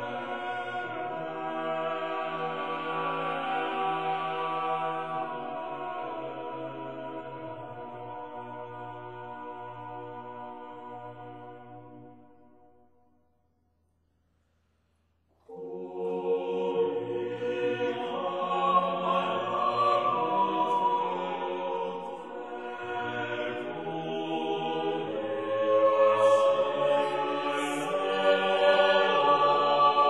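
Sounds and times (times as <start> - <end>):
choral chant: 0.0 - 12.8, 15.4 - 30.0.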